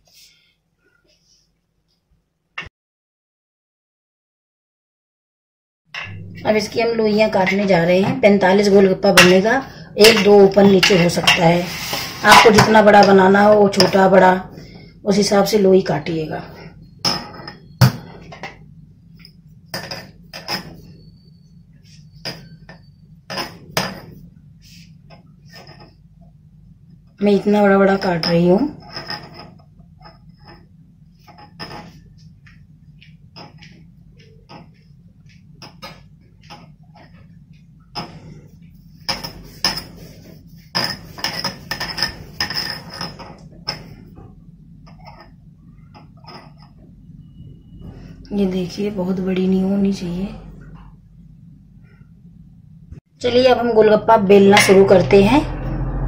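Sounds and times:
hands working dough on counter: 27.8s - 46.9s.

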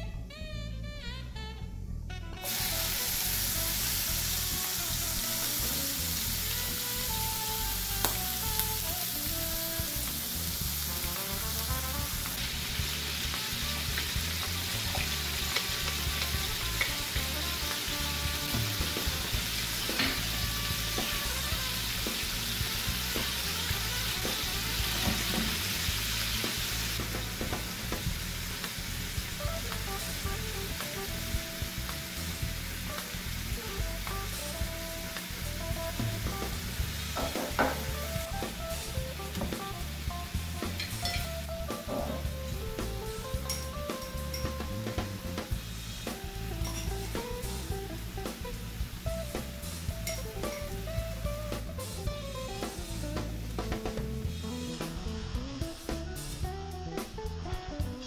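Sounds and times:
faint music: 0.0s - 58.0s
food sizzling in hot oil: 2.4s - 56.6s.

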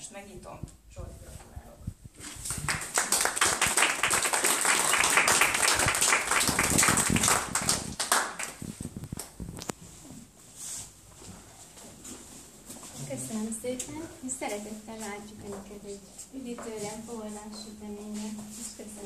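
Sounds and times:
audience applauding: 2.4s - 8.6s.

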